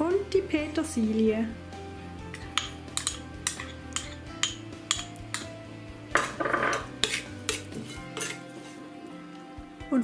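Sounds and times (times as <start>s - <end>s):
metal spoon clinking on glass: 2.4s - 5.5s, 6.2s - 7.6s.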